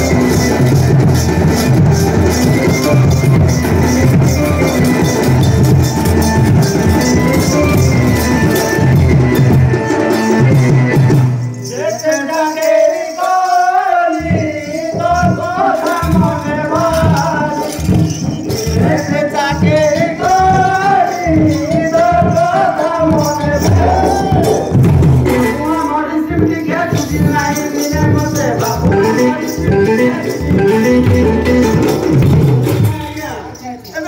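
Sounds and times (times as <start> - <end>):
steady drum beats: 0.0 - 12.7, 14.1 - 34.0
jingling hand percussion: 0.0 - 34.0
person singing folk melody: 11.7 - 24.6, 25.3 - 31.9.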